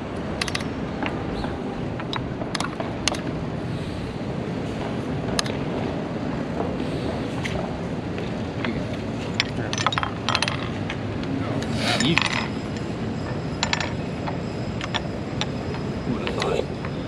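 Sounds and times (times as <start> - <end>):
outdoor background hum: 0.0 - 17.0
plastic chess pieces clacking: 0.4 - 0.6, 2.0 - 3.2, 14.8 - 15.5.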